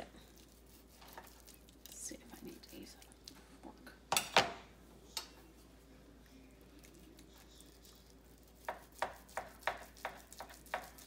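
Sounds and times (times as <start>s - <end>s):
knife slicing meat on cutting board: 8.5s - 11.0s.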